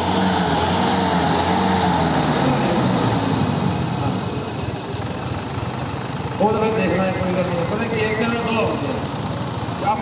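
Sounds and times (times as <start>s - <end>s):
diesel tractor engines droning: 0.0s - 10.0s.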